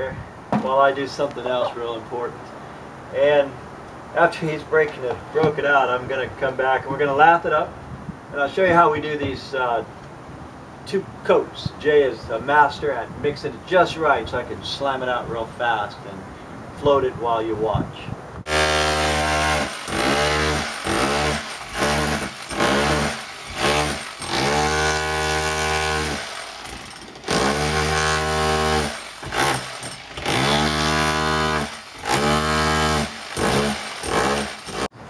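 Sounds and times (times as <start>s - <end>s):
electric chipping hammer: 18.5s - 34.9s.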